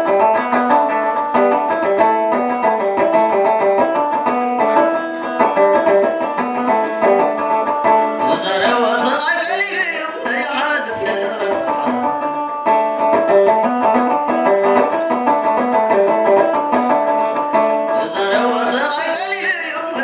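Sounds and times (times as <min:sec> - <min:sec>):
plucked string instrument melody: 0:00.0 - 0:20.0
man singing ornamented line: 0:08.1 - 0:12.4, 0:17.3 - 0:20.0.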